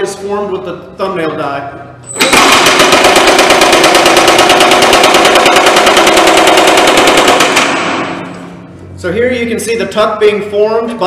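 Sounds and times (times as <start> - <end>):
power hammer pounding sheet metal: 2.2 - 8.5.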